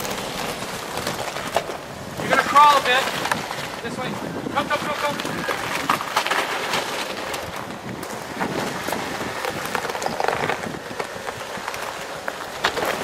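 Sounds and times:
gravel crunching under tyres: 0:00.0 - 0:13.0
stones clicking and popping: 0:04.9 - 0:13.0.

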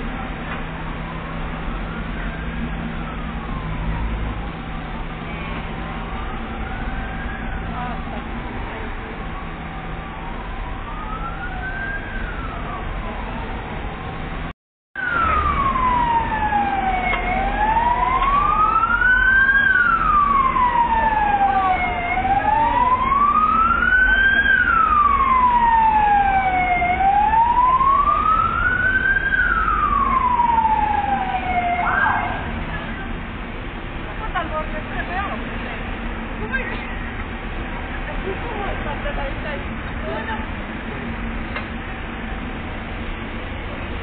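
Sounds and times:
low engine rumble: 0:00.0 - 0:44.0
emergency siren wailing: 0:00.7 - 0:33.2.

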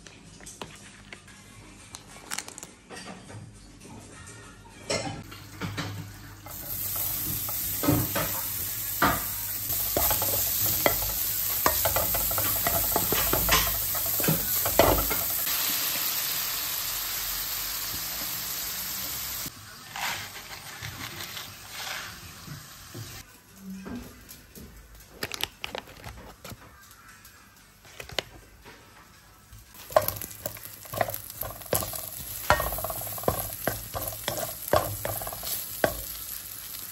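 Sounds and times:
meat sizzling in frying pan: 0:05.4 - 0:19.5, 0:29.7 - 0:36.9
spatula scraping pan: 0:29.8 - 0:36.2.

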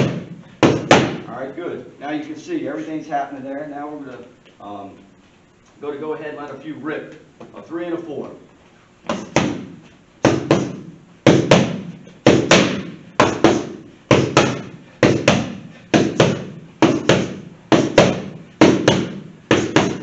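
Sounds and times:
boxing gloves smacking punch mitts: 0:00.0 - 0:01.2, 0:09.0 - 0:20.0.

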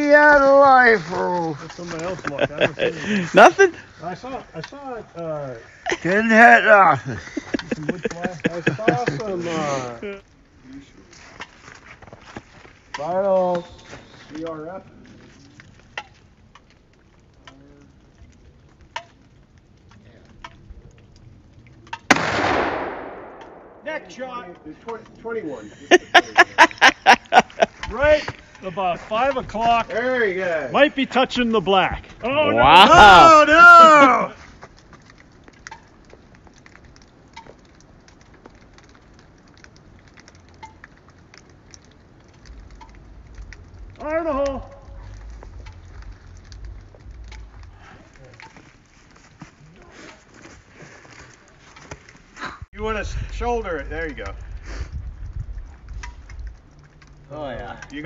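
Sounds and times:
light patter: 0:00.0 - 0:22.1, 0:23.3 - 0:58.0
faint sharp ticks and pops: 0:11.4 - 0:32.3, 0:34.5 - 0:49.5, 0:52.9 - 0:58.0.

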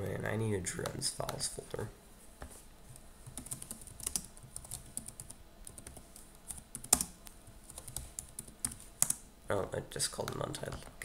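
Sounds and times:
computer keyboard typing: 0:03.2 - 0:09.2.

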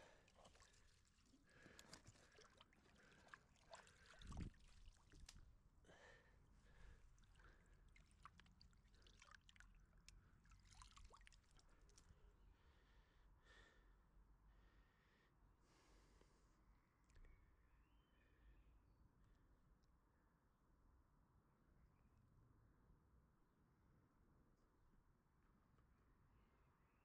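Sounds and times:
hand splashing in shallow water: 0:00.0 - 0:05.4, 0:07.2 - 0:12.0.

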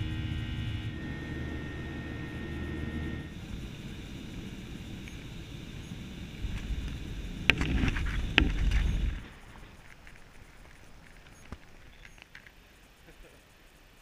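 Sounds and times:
airplane cabin rumble: 0:00.0 - 0:12.0.

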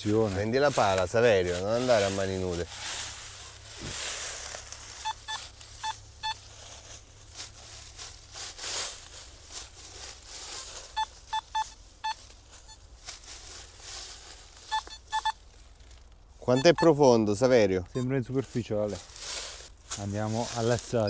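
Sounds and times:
dry leaves rustling: 0:00.0 - 0:21.0
metal detector short beeps: 0:05.0 - 0:06.4, 0:11.0 - 0:12.8, 0:14.7 - 0:15.4, 0:16.4 - 0:17.0, 0:17.9 - 0:18.2.

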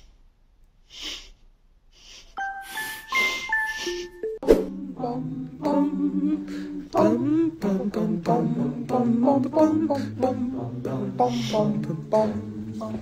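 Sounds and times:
group singing a cappella: 0:04.4 - 0:13.0.

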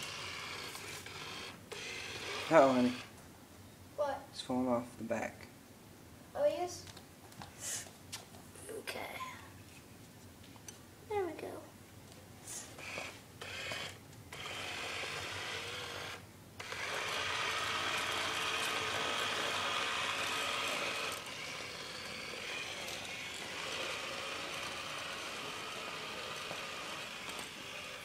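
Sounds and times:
toy car motors whirring: 0:00.0 - 0:03.1, 0:12.5 - 0:28.0.

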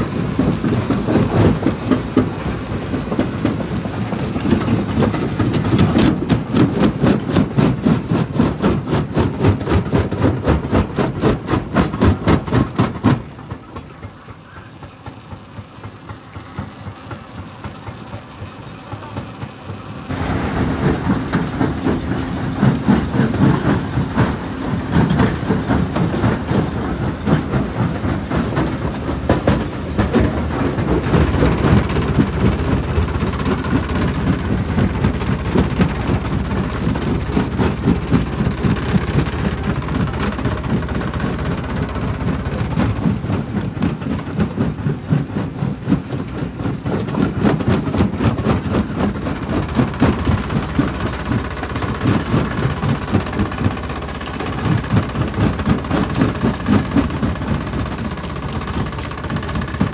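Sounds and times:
rock crusher rumbling: 0:00.0 - 0:59.9.

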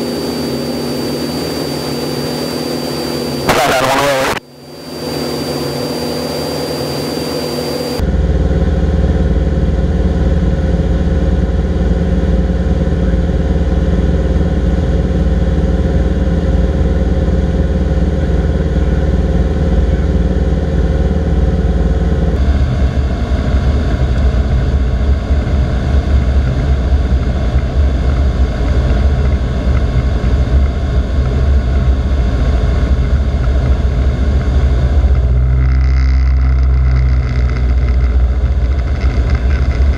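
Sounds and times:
thin high whine: 0:00.0 - 0:08.0, 0:22.2 - 0:39.9
propeller plane engine droning: 0:00.0 - 0:39.9.

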